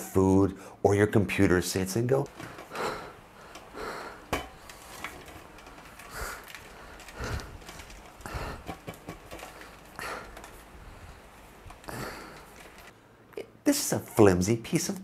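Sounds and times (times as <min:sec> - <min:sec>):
huffs of breath: 0:06.0 - 0:12.9.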